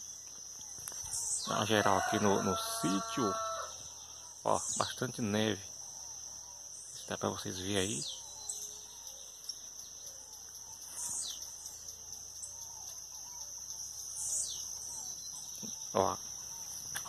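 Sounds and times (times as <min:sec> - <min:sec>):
high insect buzz: 0:00.0 - 0:07.1, 0:07.8 - 0:17.0
birds singing: 0:00.0 - 0:17.0.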